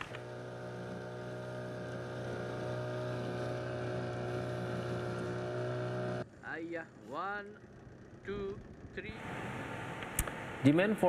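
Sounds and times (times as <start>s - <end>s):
boat engine humming: 0.0s - 11.0s.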